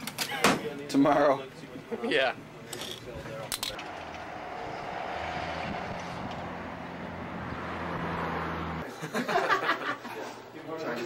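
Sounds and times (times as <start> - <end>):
vehicle engine hum: 3.5 - 8.9.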